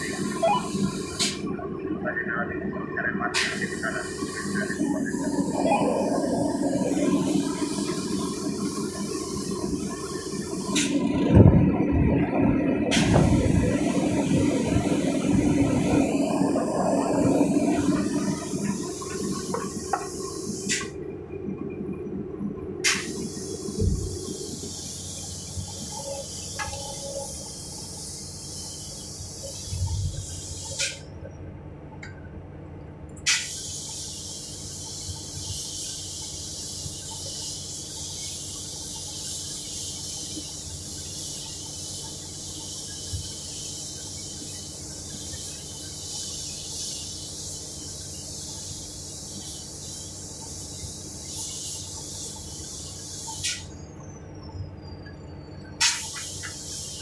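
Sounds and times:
excavator diesel engine running: 0.0 - 33.2
steady hiss: 3.2 - 11.2, 12.9 - 21.0, 22.8 - 31.1, 33.3 - 53.8, 55.8 - 57.0.

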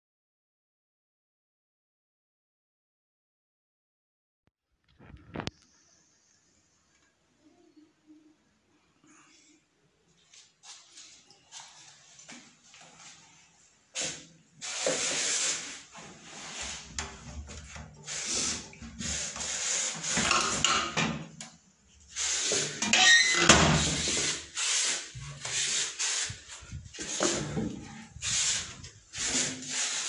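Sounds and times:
close rubbing and scraping: 22.2 - 30.0.

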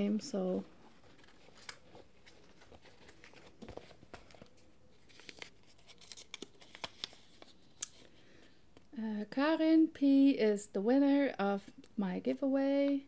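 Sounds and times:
paper rustling and crinkling: 0.8 - 8.1.

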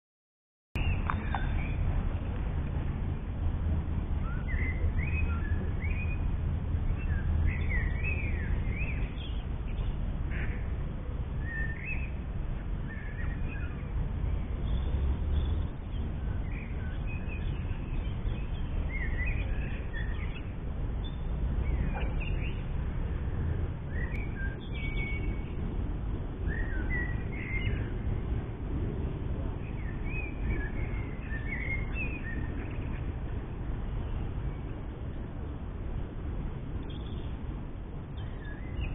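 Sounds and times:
small birds chirping: 0.8 - 2.4, 6.9 - 10.7, 11.3 - 28.1, 29.5 - 33.3, 36.7 - 38.9
steady low rumble: 0.8 - 38.9.

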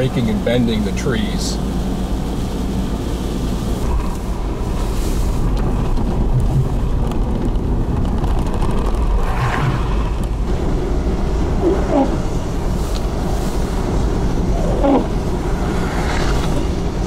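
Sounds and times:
car road rumble: 0.0 - 17.0.

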